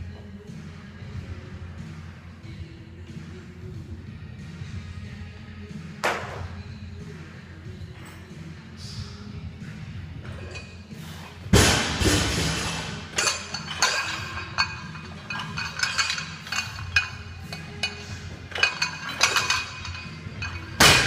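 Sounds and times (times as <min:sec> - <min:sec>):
background music: 0:00.0 - 0:21.0
barbell clanking: 0:11.6 - 0:21.0
plates clinking: 0:12.4 - 0:21.0.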